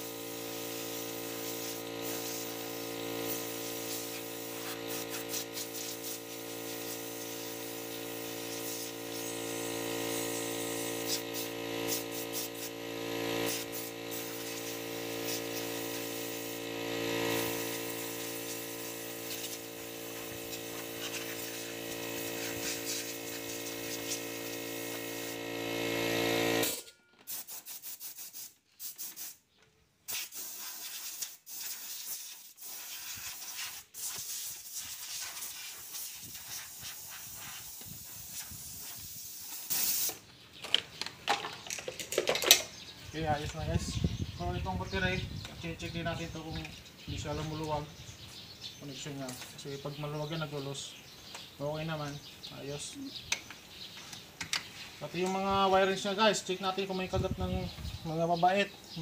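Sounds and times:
motor hum: 0.0 - 26.8
air blow gun hissing: 0.0 - 29.4, 30.1 - 40.2.

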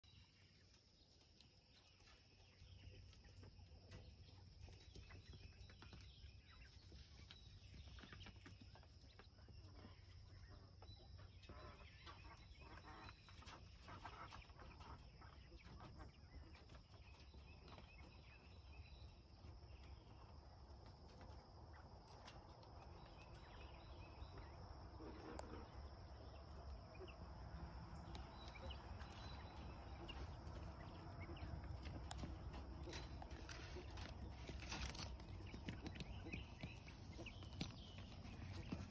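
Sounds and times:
footsteps on dirt and straw: 29.1 - 38.9.

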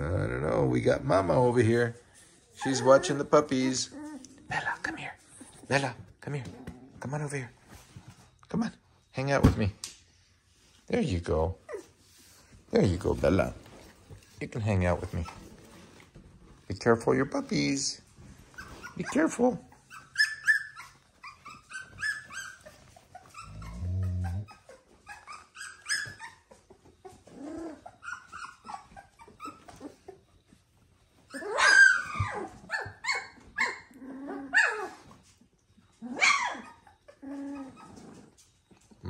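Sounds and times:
dogs whining and squealing: 2.5 - 5.8, 11.6 - 12.7, 14.9 - 16.1, 18.2 - 39.0
dog growling low: 23.4 - 24.6, 27.3 - 27.9, 33.9 - 34.9, 37.2 - 38.4.

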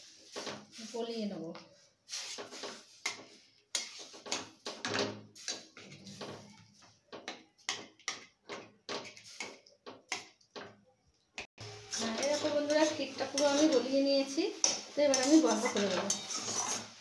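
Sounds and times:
steel spatula scraping metal pan: 11.6 - 17.0.

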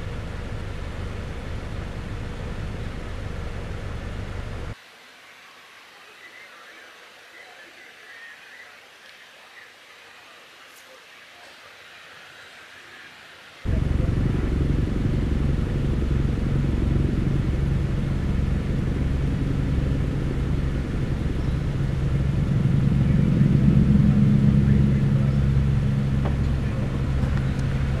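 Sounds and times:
engine droning: 0.0 - 4.8, 13.6 - 28.0.

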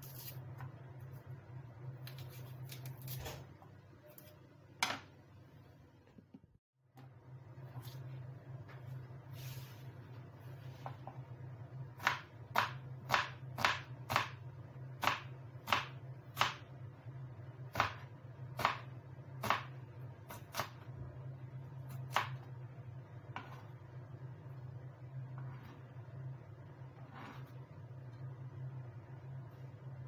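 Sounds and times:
steady low hum: 3.6 - 30.0.

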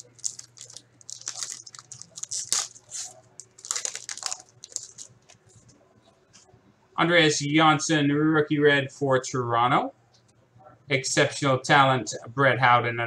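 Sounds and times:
foil wrapper tearing and crinkling: 0.0 - 5.5.

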